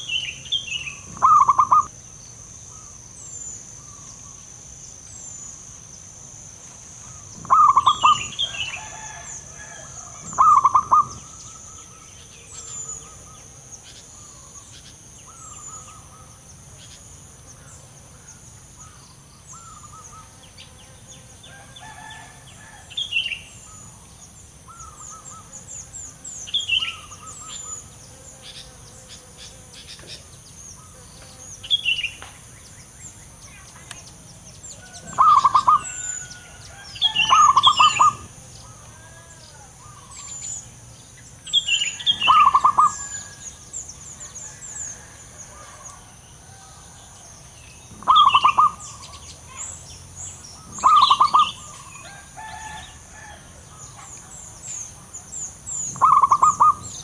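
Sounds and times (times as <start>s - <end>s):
dove cooing in rolling notes: 0.0s - 1.9s, 7.0s - 16.5s, 34.7s - 40.8s, 41.5s - 47.3s, 47.9s - 49.6s, 50.6s - 54.1s, 55.8s - 57.0s
small birds chirping: 0.0s - 22.2s, 23.0s - 46.1s, 47.0s - 57.0s.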